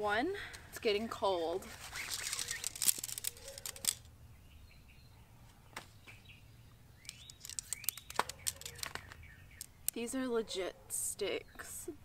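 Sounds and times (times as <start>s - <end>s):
tent poles clicking and rattling: 1.6s - 4.1s, 7.0s - 9.7s
birds chirping: 1.9s - 12.0s.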